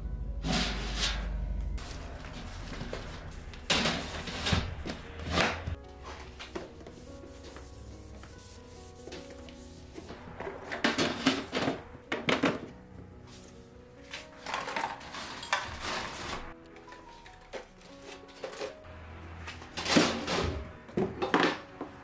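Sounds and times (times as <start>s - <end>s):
soft background music: 0.0s - 22.0s
plastic containers scraping on shelf: 1.8s - 6.8s, 10.1s - 12.7s, 14.4s - 16.5s, 19.5s - 21.6s.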